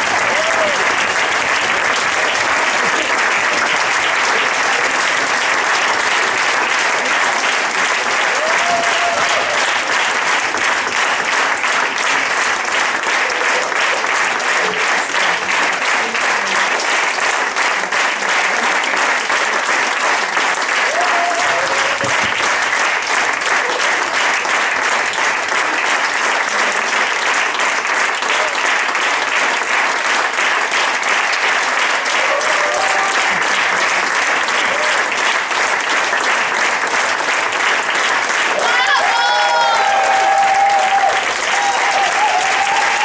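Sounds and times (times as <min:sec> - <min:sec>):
audience applauding: 0:00.0 - 0:43.0.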